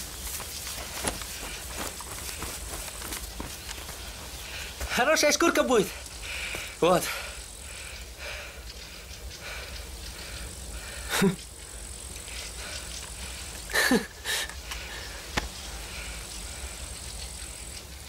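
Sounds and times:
steady low hum: 0.0s - 5.0s
man chuckling: 13.7s - 14.6s.

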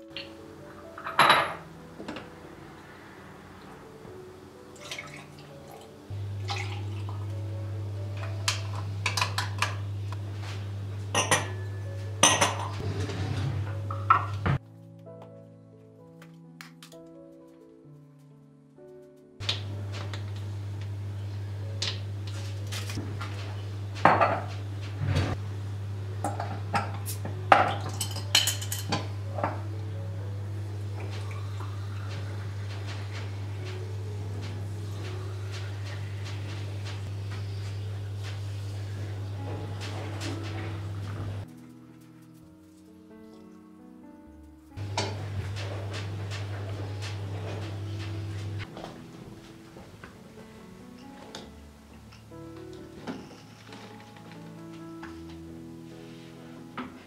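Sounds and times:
porcelain cups clinking: 11.1s - 12.8s, 26.3s - 29.6s
steady low hum: 28.9s - 41.5s.

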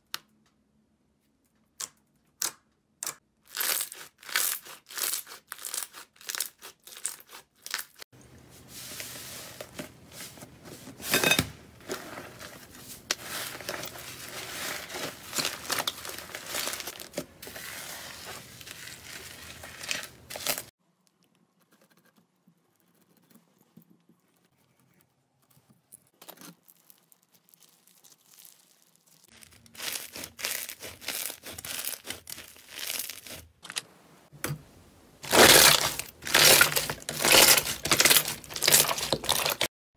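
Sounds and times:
slime crackling and popping: 35.2s - 39.7s.

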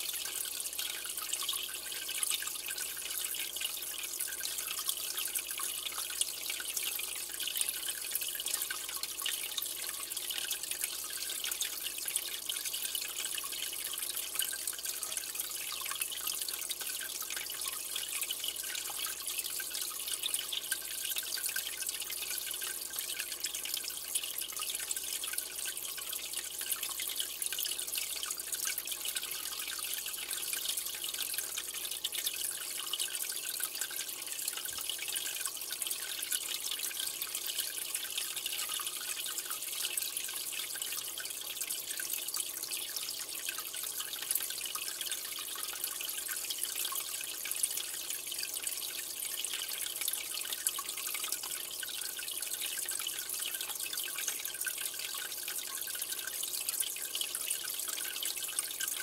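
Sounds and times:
aquarium water trickling: 0.0s - 59.0s.

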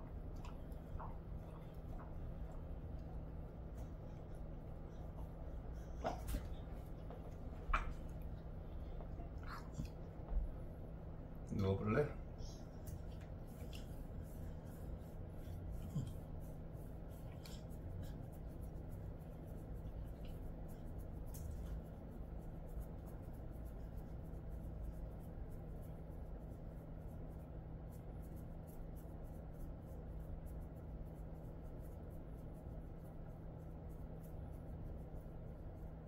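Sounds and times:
steady low hum: 0.0s - 36.0s
fingers scratching dog fur: 11.6s - 36.0s.

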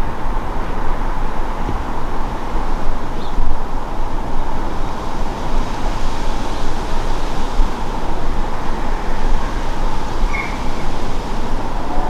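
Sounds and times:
distant jet rumble: 0.0s - 12.0s.

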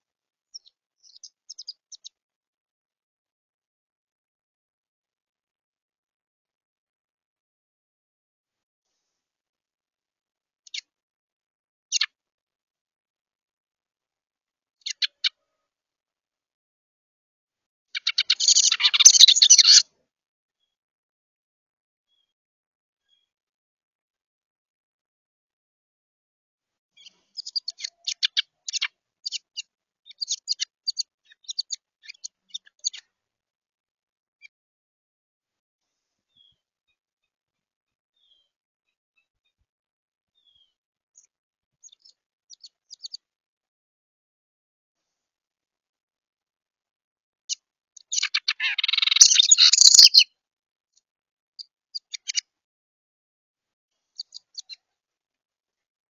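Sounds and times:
wren chirping: 0.5s - 2.1s, 18.0s - 19.8s, 27.0s - 33.0s, 48.0s - 50.2s, 52.0s - 52.4s, 54.2s - 54.8s
bird sharp chips: 18.0s - 19.8s, 48.1s - 50.2s
wren chattering calls: 18.0s - 19.8s, 27.4s - 29.4s, 48.0s - 50.2s.

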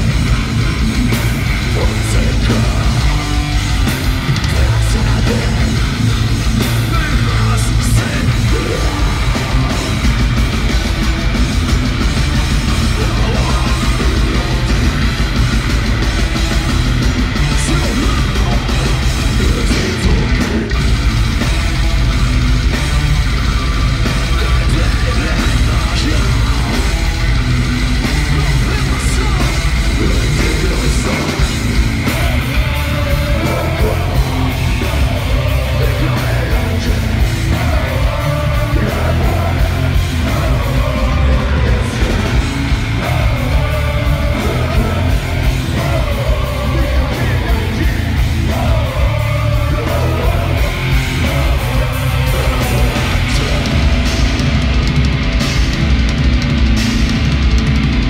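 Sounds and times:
metal band playing: 0.0s - 58.0s
shouted vocals: 4.2s - 10.4s, 12.6s - 15.1s, 28.0s - 54.4s.

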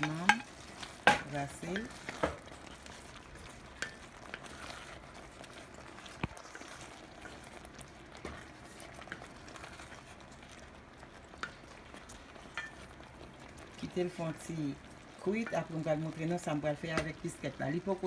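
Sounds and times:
spoon knocking against pot: 0.0s - 0.5s
sauce cooking hiss: 0.0s - 18.0s
wooden spoon stirring sauce: 0.0s - 18.0s.

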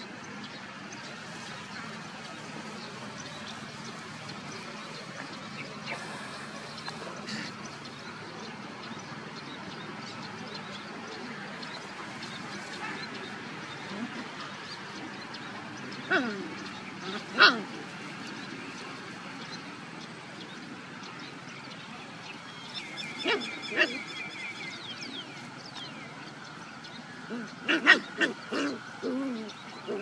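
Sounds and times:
puppies yipping and growling: 12.1s - 18.6s, 27.2s - 30.0s.

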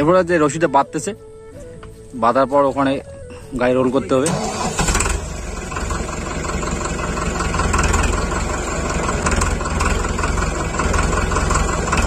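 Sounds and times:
tractor diesel engine idling: 3.4s - 12.0s.

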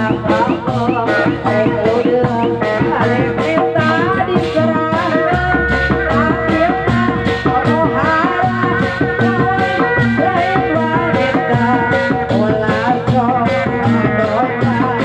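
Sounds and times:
fast percussion beat: 0.0s - 15.0s
sliding melody line: 4.1s - 12.5s.

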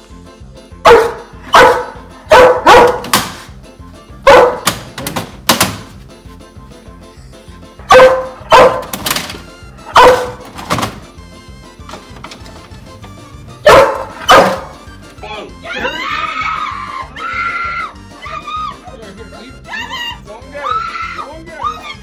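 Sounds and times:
background music: 0.0s - 22.0s
dog barking loudly: 0.8s - 3.2s, 4.2s - 4.7s, 7.8s - 9.0s, 9.9s - 10.5s, 13.6s - 14.8s.

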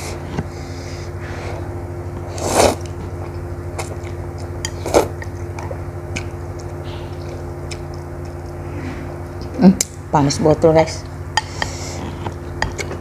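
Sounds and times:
steady low hum: 0.0s - 13.0s
noodles slurped: 2.3s - 3.0s
wet chewing clicks: 5.2s - 8.5s.

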